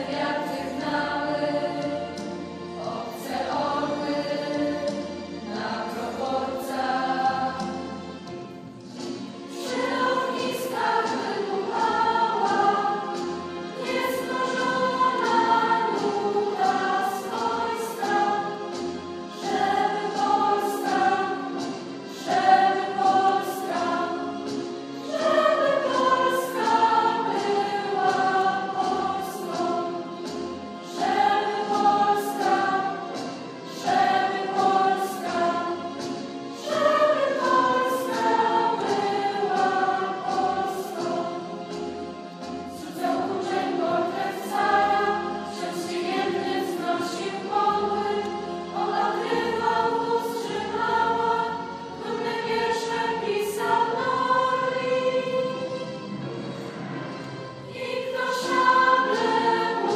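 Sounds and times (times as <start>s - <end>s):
girls' choir singing: 0.0s - 8.2s, 9.0s - 59.9s.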